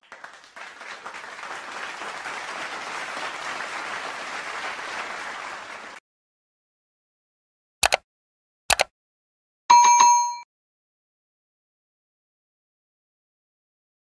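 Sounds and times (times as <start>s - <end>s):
audience applause: 0.0s - 6.0s.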